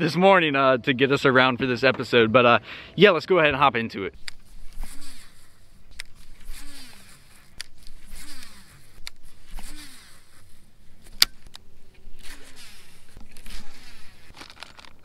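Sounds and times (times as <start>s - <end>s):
fishing reel whirring zips: 4.4s - 11.1s, 12.1s - 14.3s.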